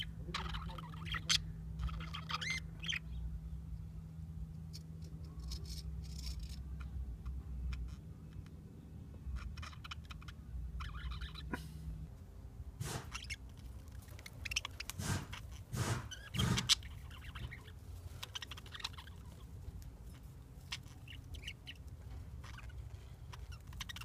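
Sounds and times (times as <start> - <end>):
budgerigars chattering: 0.0 - 3.2, 9.4 - 11.6, 12.8 - 13.5, 14.2 - 24.0
steady low hum: 0.0 - 24.0.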